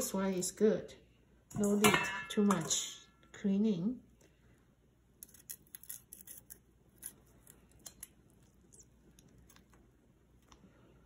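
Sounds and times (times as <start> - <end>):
cleaver scraping shrimp shells: 5.2 - 8.1.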